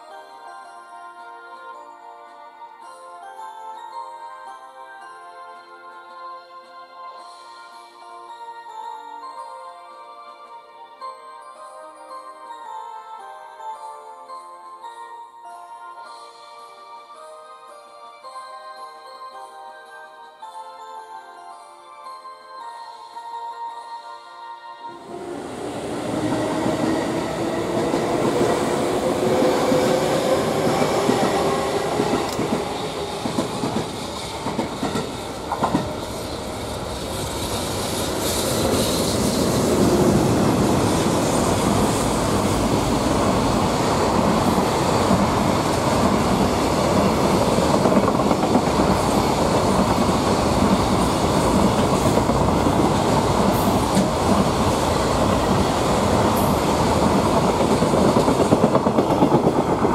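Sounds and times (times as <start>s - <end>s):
electric locomotive humming: 24.9s - 59.9s.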